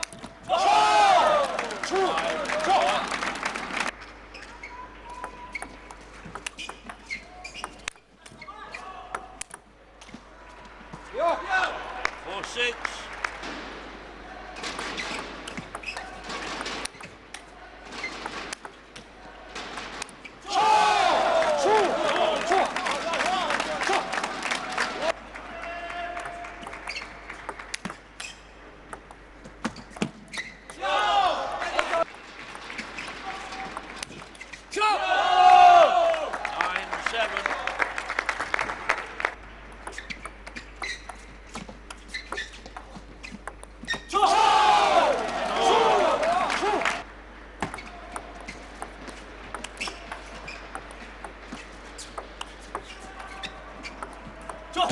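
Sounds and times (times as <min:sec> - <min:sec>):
table tennis ball clicking: 0:05.5 - 0:07.0, 0:09.1 - 0:09.7, 0:15.4 - 0:17.5, 0:26.2 - 0:30.7, 0:39.7 - 0:44.0, 0:47.6 - 0:54.9
hand-clapping: 0:36.0 - 0:39.4.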